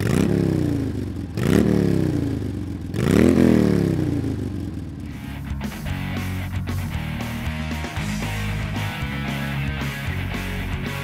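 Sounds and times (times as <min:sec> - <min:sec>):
engine revving: 0:00.0 - 0:11.0.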